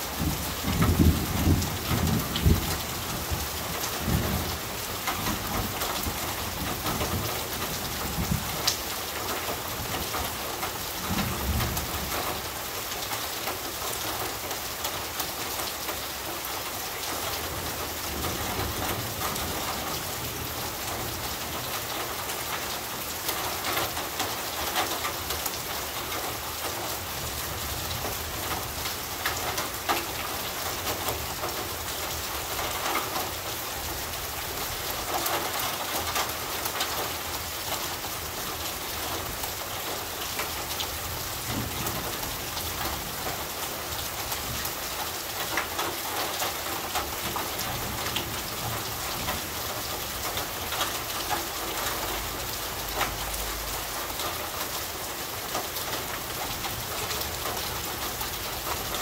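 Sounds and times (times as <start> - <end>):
heavy rain on tin roof: 0.0 - 59.0.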